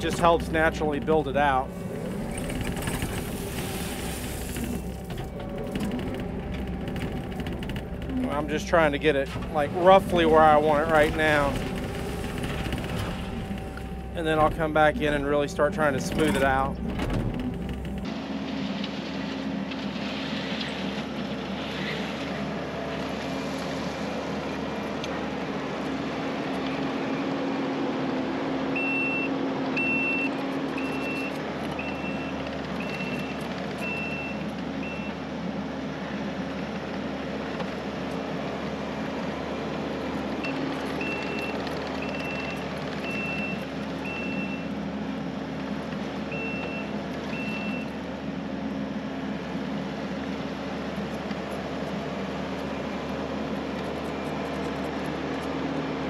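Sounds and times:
diesel engine running: 0.0s - 56.0s
backup alarm beeping: 0.3s - 18.1s, 28.8s - 35.2s, 40.4s - 44.7s, 46.3s - 48.0s.

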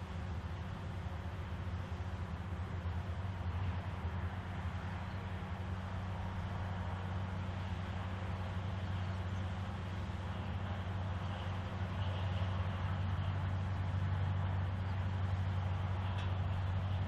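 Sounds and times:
diesel locomotive engine humming: 0.0s - 17.0s.

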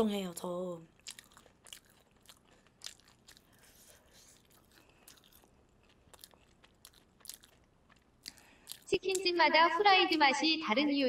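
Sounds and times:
crunching fried chicken: 1.0s - 8.9s.

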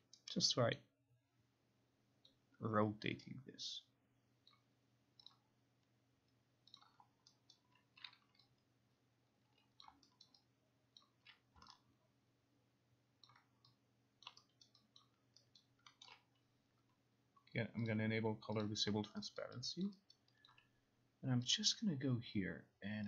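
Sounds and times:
faint low hum: 0.0s - 23.0s
mouse and keyboard clicks: 4.5s - 5.4s, 6.6s - 8.7s, 9.5s - 11.9s, 13.2s - 16.4s.

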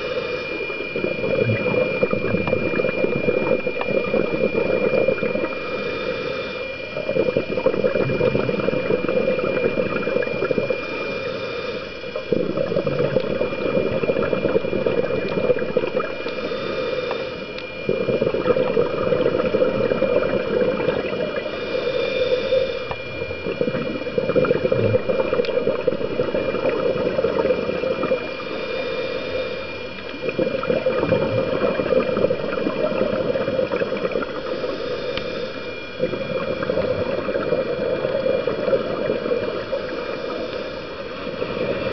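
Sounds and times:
underwater bubbling exhalation: 0.0s - 6.0s, 6.9s - 11.1s, 12.2s - 16.7s, 17.7s - 21.5s, 22.8s - 28.5s, 30.0s - 34.6s, 35.7s - 40.4s
faint high whine: 0.0s - 41.9s
regulator inhalation hiss: 0.0s - 41.9s.

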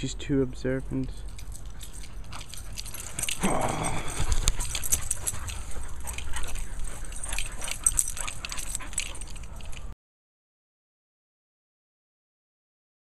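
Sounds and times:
dog playing rustling and clicking: 0.8s - 9.9s.

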